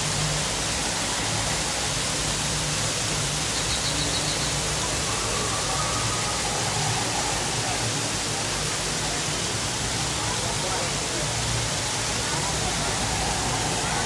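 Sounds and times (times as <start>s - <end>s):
rushing water: 0.0s - 14.0s.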